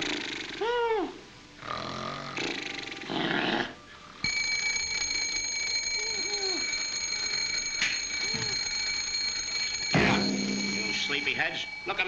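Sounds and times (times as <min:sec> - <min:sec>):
men snoring: 0:01.6 - 0:03.8
alarm clock bell ringing: 0:04.2 - 0:12.0.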